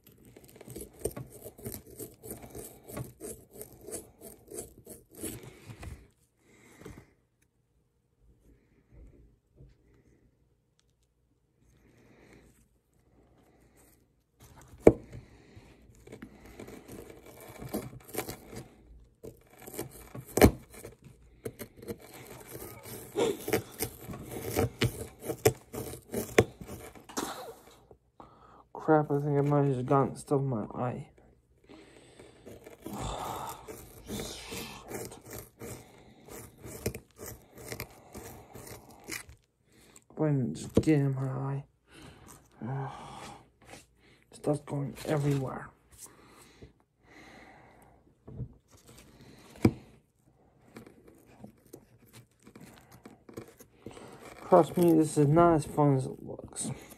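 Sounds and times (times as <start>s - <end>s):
plastic tool scraping crust: 0.0s - 6.2s, 11.6s - 27.9s, 31.2s - 41.3s, 43.6s - 46.2s, 48.6s - 56.9s.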